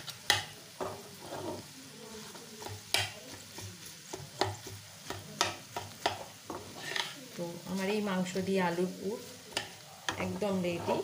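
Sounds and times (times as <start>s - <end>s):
filling sizzling in frying pan: 0.0s - 11.0s
spatula stirring and mashing: 0.0s - 11.0s
spatula knocking against pan: 2.6s - 6.6s.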